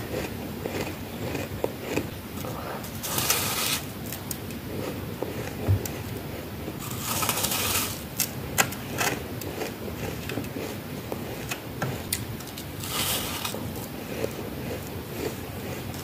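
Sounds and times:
sharp cracks of frost: 0:03.0 - 0:04.4, 0:06.8 - 0:08.8, 0:12.4 - 0:13.6.

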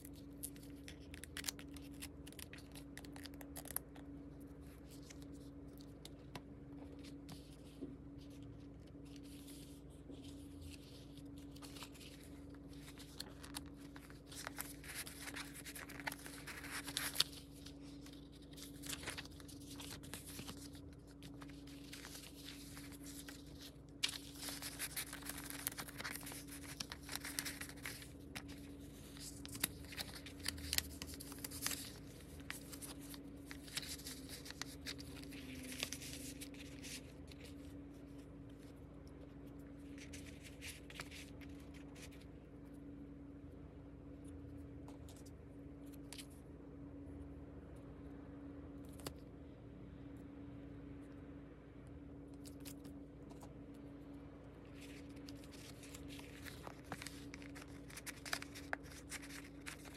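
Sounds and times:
paper rustling and crinkling: 0:00.0 - 0:42.3, 0:54.6 - 0:59.9
faint steady hum: 0:00.0 - 0:59.9.

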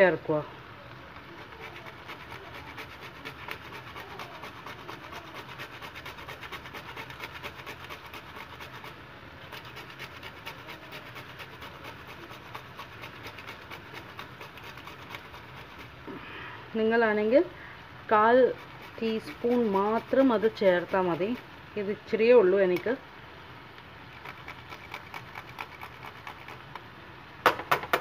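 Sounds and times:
nutmeg rasping on metal grater: 0:01.2 - 0:16.0, 0:18.1 - 0:21.5, 0:24.1 - 0:26.8.

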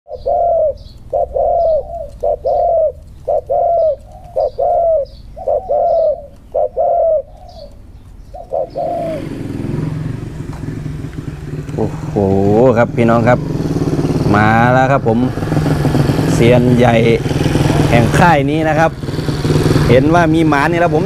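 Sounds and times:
dove cooing: 0:00.1 - 0:13.3.

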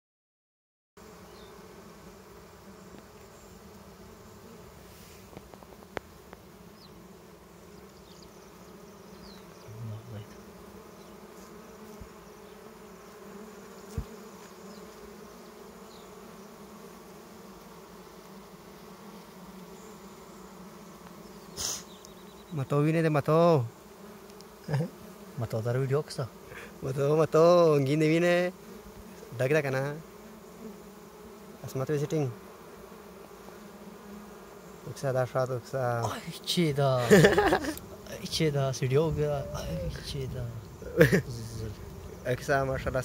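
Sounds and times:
bees buzzing: 0:01.0 - 0:43.0
faint clicks: 0:24.3 - 0:24.5.

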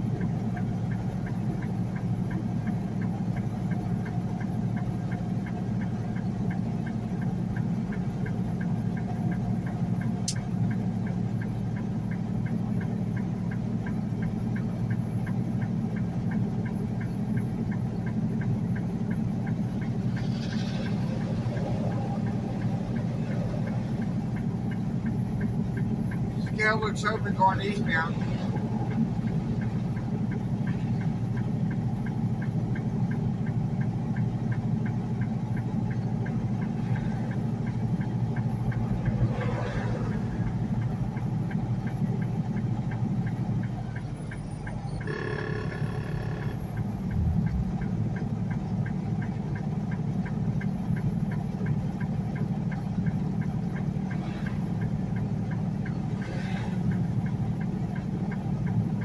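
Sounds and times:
truck engine and road drone: 0:00.0 - 0:59.0
fast light ticking: 0:00.1 - 0:59.0
short pitched tone: 0:45.0 - 0:47.7.

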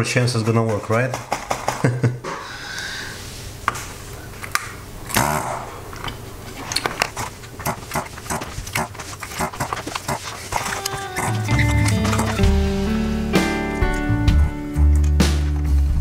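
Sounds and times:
solder clicking and crackling: 0:06.0 - 0:12.6
desoldering gun humming: 0:06.8 - 0:14.8.

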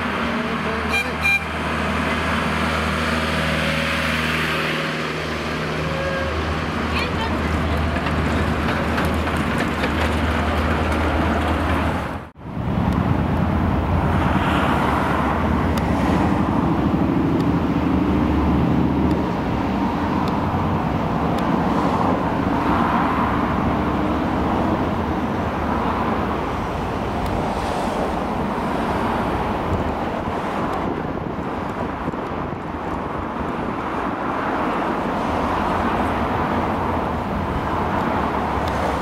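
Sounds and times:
cars moving along road: 0:00.0 - 0:39.0
road train engine: 0:00.0 - 0:39.0.

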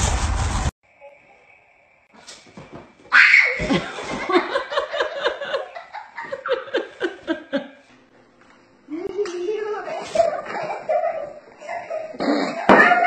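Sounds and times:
person laughing loudly: 0:10.2 - 0:13.0.

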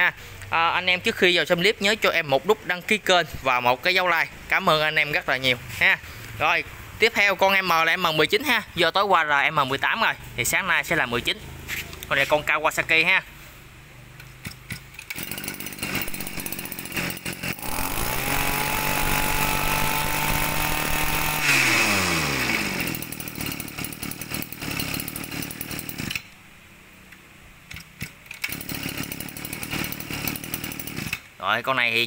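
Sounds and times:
mechanical clicks and rattles: 0:14.2 - 0:19.7, 0:27.7 - 0:31.3
brush cutter engine running: 0:14.7 - 0:26.3, 0:27.7 - 0:31.3.

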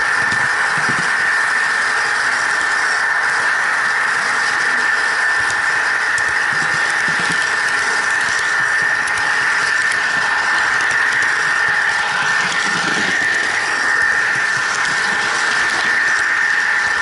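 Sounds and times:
model train electric whine: 0:00.0 - 0:17.0
wheels rolling on rails: 0:05.3 - 0:16.6.

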